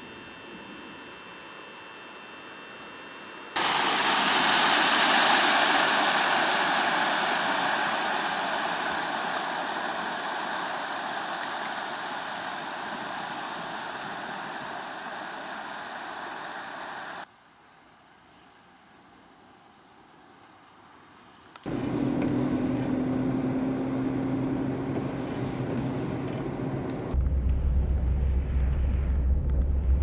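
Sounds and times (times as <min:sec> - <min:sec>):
car driving through floodwater: 0:21.7 - 0:26.9.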